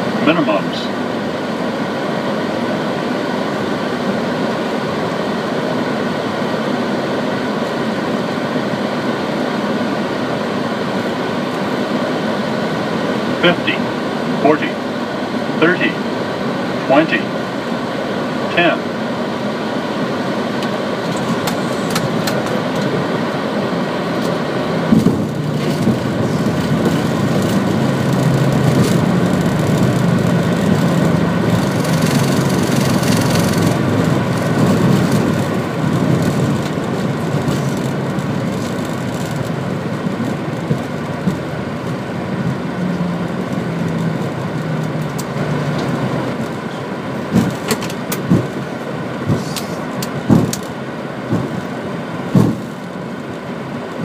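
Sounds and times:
jet engines and airflow roar: 0.0s - 54.0s
thump: 52.4s - 52.7s.

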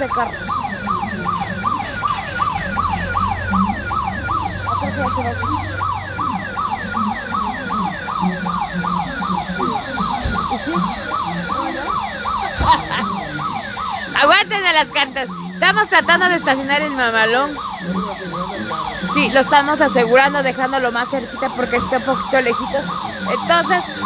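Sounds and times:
vehicle alarm siren sweeping: 0.0s - 24.0s.

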